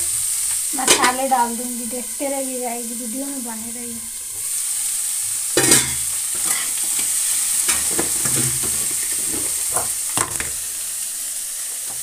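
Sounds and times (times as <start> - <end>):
vegetables sizzling in oil: 0.0 - 12.0
metal spatula scraping a pan: 5.6 - 10.0.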